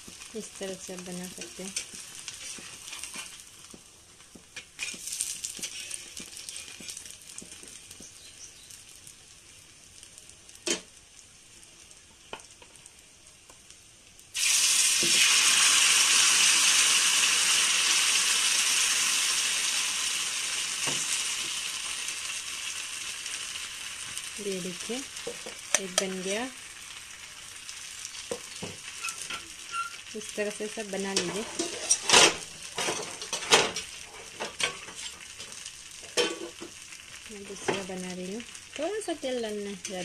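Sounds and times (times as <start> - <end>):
batter sizzling in oil: 0.0 - 40.0.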